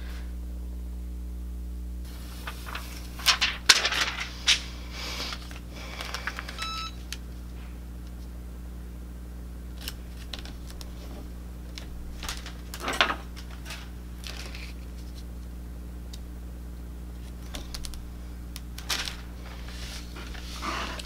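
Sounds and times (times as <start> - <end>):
steady low hum: 0.0 - 21.0
plastic sheet crinkling: 2.1 - 7.1, 9.7 - 15.4, 17.2 - 21.0.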